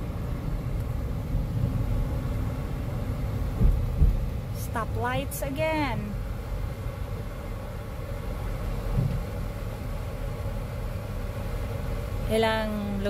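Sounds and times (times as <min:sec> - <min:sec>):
car idling cabin rumble: 0:00.0 - 0:13.0.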